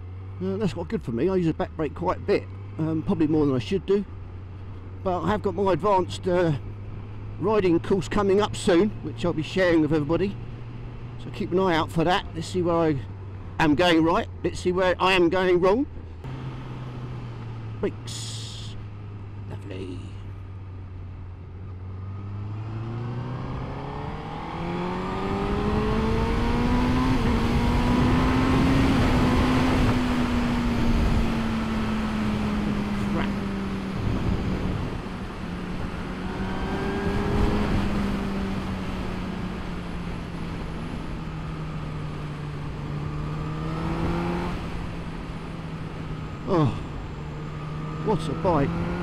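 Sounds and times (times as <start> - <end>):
motorcycle engine accelerating: 15.0 - 49.0.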